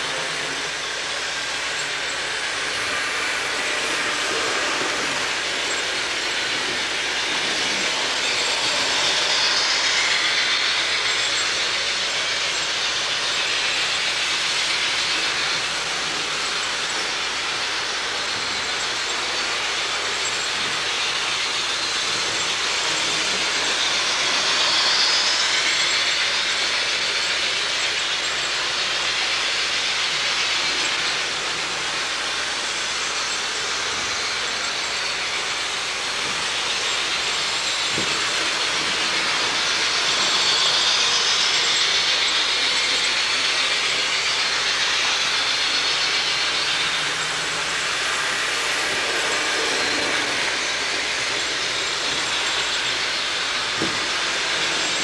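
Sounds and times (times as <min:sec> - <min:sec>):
model trains whirring on track: 0:00.0 - 0:55.0.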